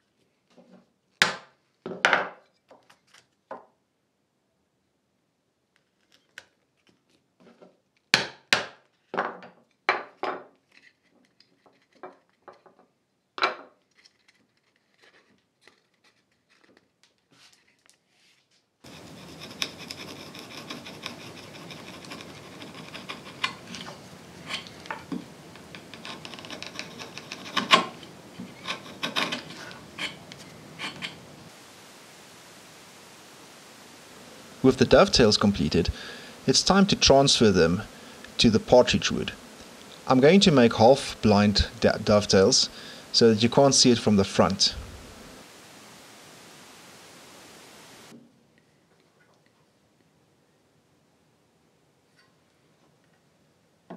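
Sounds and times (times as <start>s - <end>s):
steady room hiss: 0.0s - 53.9s
chisel paring and clicking: 18.9s - 31.2s
marking knife scoring wood: 18.9s - 31.2s.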